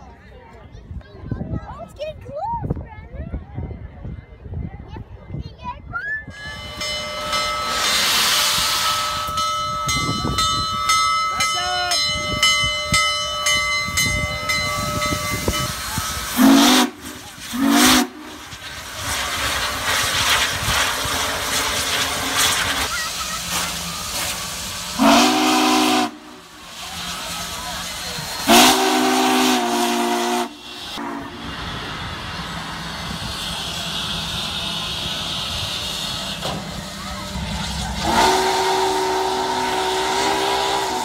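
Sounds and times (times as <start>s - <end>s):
steam engine rumbling: 6.2s - 41.0s
steam hissing: 6.3s - 11.0s, 12.1s - 41.0s
locomotive bell ringing: 6.3s - 16.5s
steam whistle blasts: 14.8s - 18.5s, 24.9s - 26.5s, 28.4s - 31.5s, 38.0s - 41.0s.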